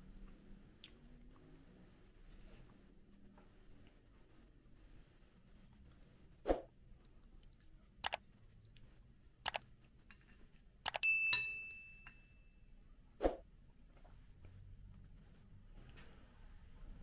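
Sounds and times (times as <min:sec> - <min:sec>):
metal spoon clinking on pot and bowl: 0:11.0 - 0:12.4.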